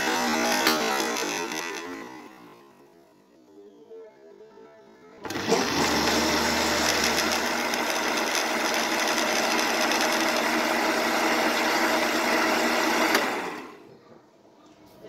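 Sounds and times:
blender motor running: 0:00.0 - 0:02.8, 0:05.2 - 0:13.8.

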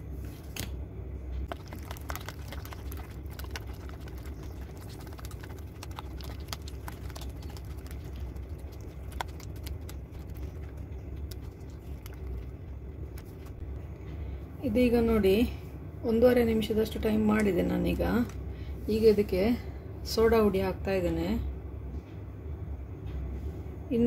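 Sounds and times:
low hum: 0:00.0 - 0:24.0
batter beaten by hand in bowl: 0:01.4 - 0:13.6.

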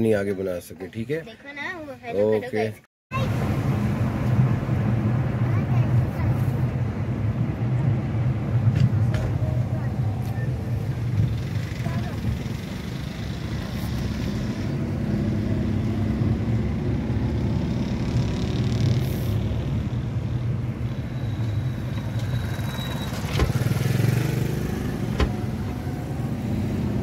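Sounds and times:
engine and road rumble: 0:00.0 - 0:27.0.

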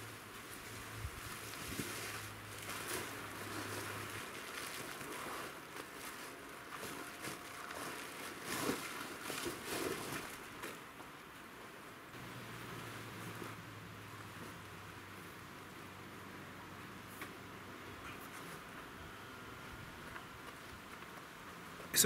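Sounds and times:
fabric rustling and flapping: 0:00.0 - 0:15.8.

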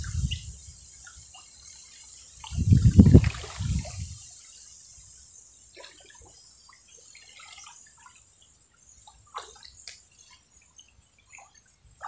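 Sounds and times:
water splashing and dripping: 0:02.4 - 0:04.2.

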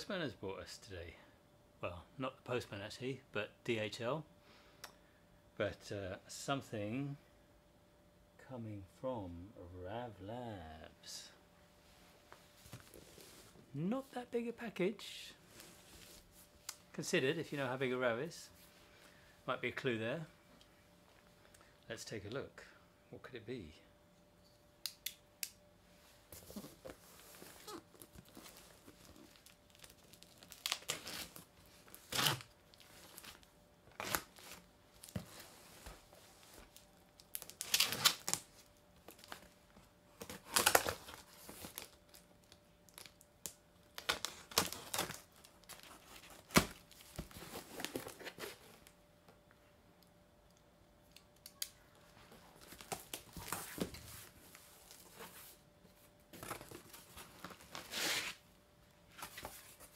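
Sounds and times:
packing tape ripping off box: 0:29.0 - 0:34.7, 0:37.2 - 0:38.5, 0:44.0 - 0:48.6, 0:57.5 - 0:58.4.

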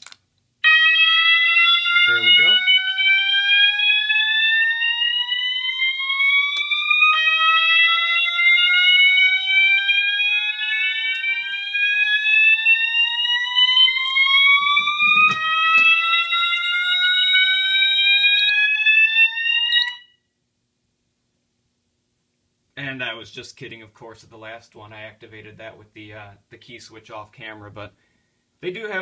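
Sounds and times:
fire alarm rising sweep tone: 0:00.6 - 0:20.2.

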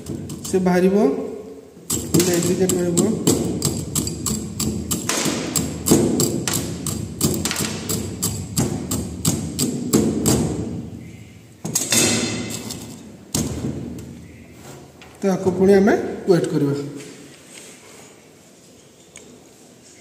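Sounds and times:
steel rod knocking stone chips: 0:01.9 - 0:09.0.

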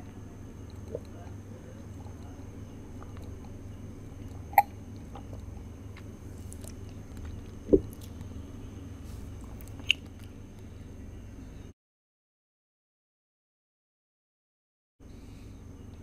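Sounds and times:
faint high whine: 0:00.0 - 0:11.8, 0:15.0 - 0:16.0
low background hum: 0:00.0 - 0:11.8, 0:15.0 - 0:16.0.

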